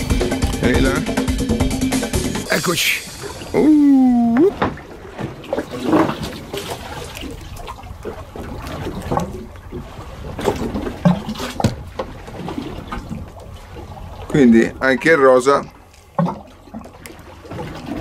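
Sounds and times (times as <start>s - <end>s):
water lapping against boat: 0.0s - 18.0s
fish clicking and slapping: 4.4s - 14.4s, 15.8s - 18.0s.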